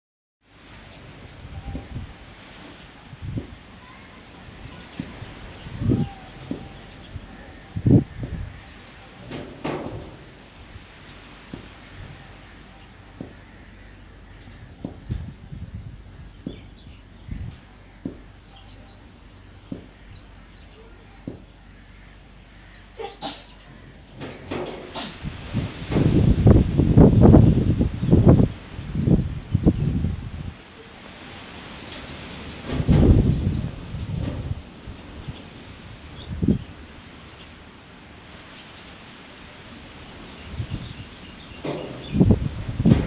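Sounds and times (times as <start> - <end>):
cricket chirping: 4.0 - 23.5, 24.2 - 24.8, 28.6 - 33.7.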